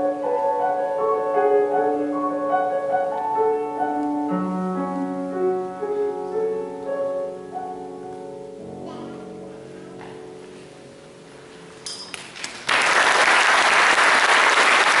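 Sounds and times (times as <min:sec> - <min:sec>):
women's choir with piano: 0:00.0 - 0:10.9
audience applause: 0:12.3 - 0:15.0.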